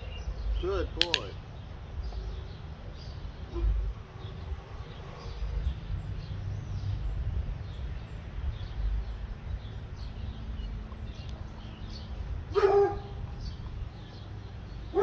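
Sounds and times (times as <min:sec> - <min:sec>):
faint birdsong: 0:00.0 - 0:15.0
wind on microphone: 0:01.4 - 0:14.5
puppy barking: 0:12.5 - 0:13.2.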